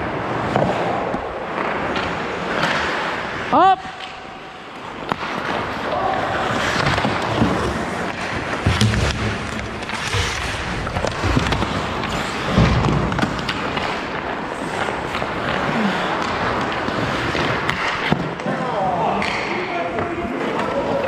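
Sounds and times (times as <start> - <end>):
sticks and puck clacking: 0.2 - 21.0
skate blades scraping ice: 4.6 - 18.6
dull thumps: 8.6 - 13.0.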